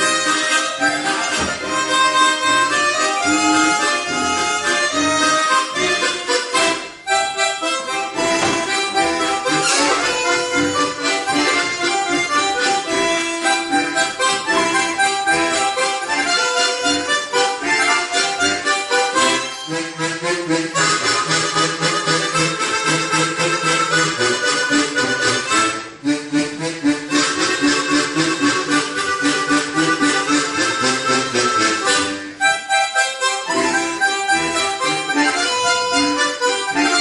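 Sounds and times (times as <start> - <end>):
harmonica ensemble playing: 0.0 - 37.0.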